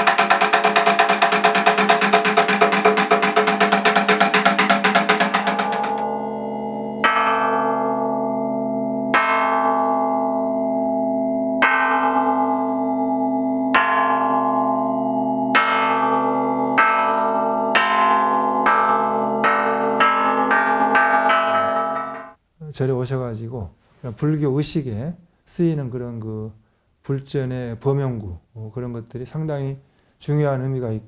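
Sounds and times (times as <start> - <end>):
wooden fish drum roll: 0.0 - 6.0
metal gong plate ringing: 0.0 - 22.4.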